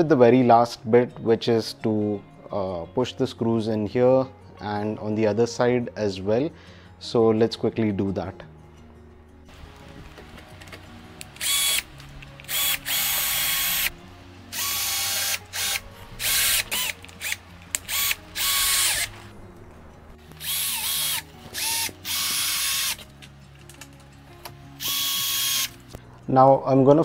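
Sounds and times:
cordless drill driving screws: 11.3s - 13.9s, 14.5s - 19.3s, 20.4s - 23.0s, 24.8s - 25.9s.

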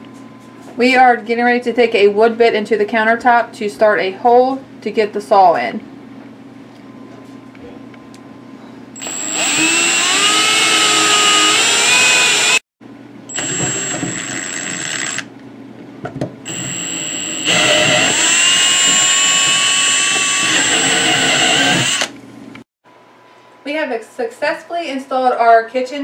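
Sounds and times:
power drill boring into wood: 9.0s - 12.6s, 13.3s - 15.3s, 16.5s - 22.1s.

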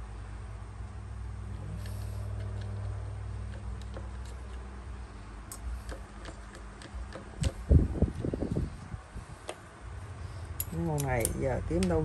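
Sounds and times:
small metal parts clicking: 10.5s - 12.0s.

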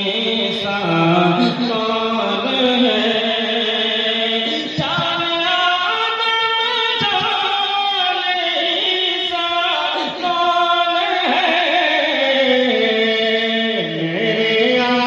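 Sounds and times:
solo voice chanting: 0.0s - 15.0s.

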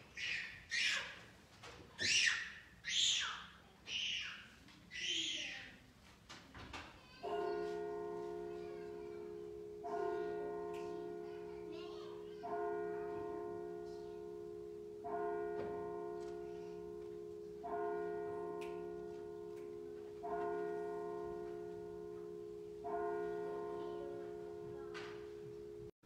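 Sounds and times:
church bell tolling: 7.2s - 26.0s.

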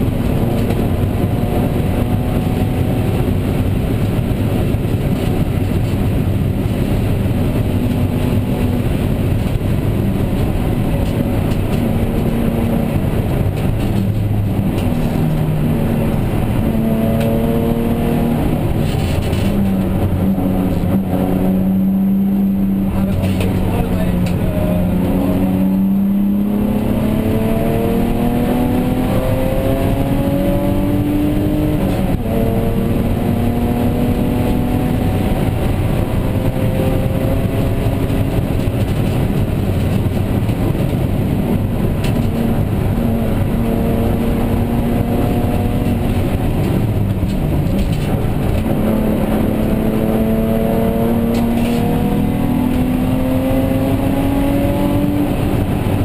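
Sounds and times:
race car engine revving through gears: 0.0s - 56.0s
road and tyre noise: 0.0s - 56.0s.

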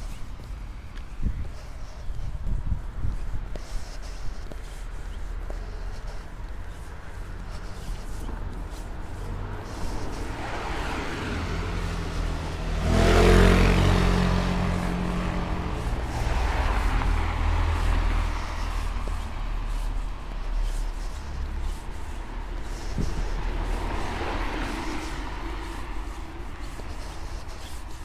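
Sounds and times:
steady low traffic rumble: 0.0s - 28.0s
vehicle passing by: 6.0s - 28.0s.

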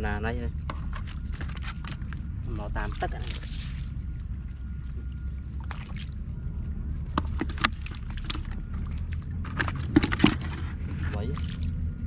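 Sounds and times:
steady low rumble: 0.0s - 12.0s
water splashing: 4.8s - 6.3s, 7.1s - 12.0s.

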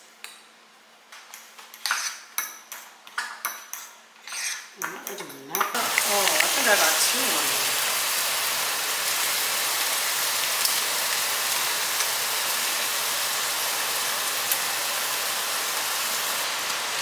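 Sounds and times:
bacon sizzling in frying pan: 5.5s - 17.0s.

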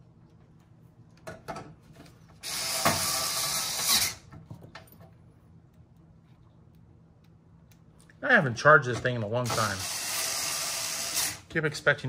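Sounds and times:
electric screwdriver running: 2.4s - 4.2s, 9.5s - 11.4s.

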